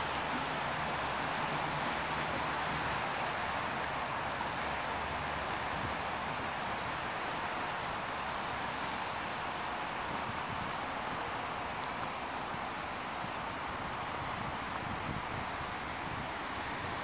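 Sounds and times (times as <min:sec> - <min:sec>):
tram running noise: 0:00.0 - 0:12.6
high hiss: 0:04.2 - 0:09.8.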